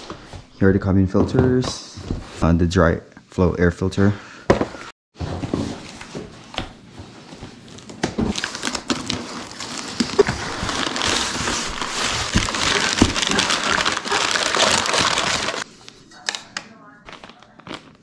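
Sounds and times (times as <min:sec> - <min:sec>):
packing material crinkling: 0:07.7 - 0:18.0.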